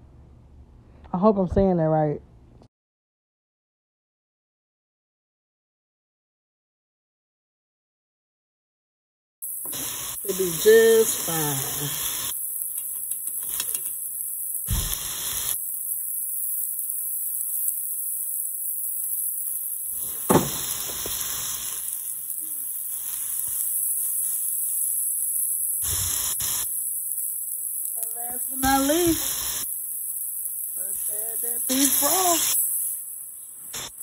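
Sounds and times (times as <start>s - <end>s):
liquid hissing in hot pan: 9.4s - 34.0s
meat sizzling in a pot: 9.4s - 34.0s
sharp knock: 20.3s - 20.6s.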